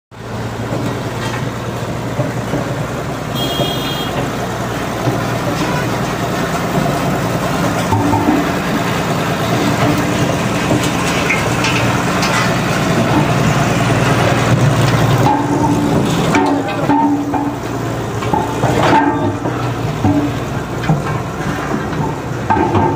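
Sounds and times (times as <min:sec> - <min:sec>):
diesel engine running: 0:00.1 - 0:22.9
vehicle horn toot: 0:03.3 - 0:04.3.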